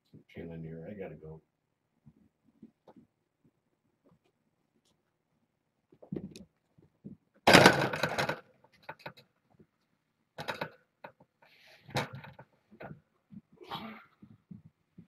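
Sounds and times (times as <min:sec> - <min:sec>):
light knocks and shuffles: 0:11.9 - 0:15.0.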